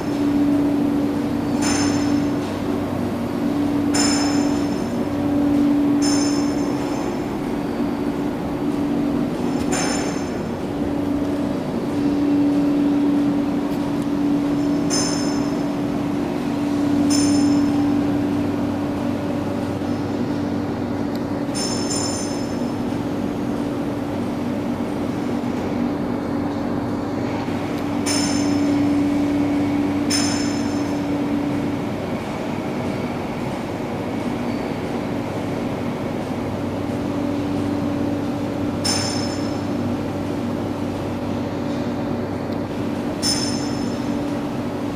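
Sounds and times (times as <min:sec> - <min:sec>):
industrial machinery hum: 0:00.0 - 0:44.9
high metallic clinks: 0:21.6 - 0:22.5.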